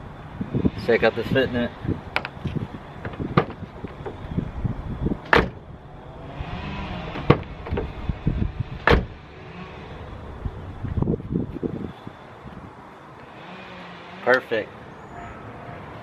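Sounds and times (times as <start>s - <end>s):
car door slamming: 3.0s - 4.0s, 5.3s - 5.6s, 8.8s - 9.2s.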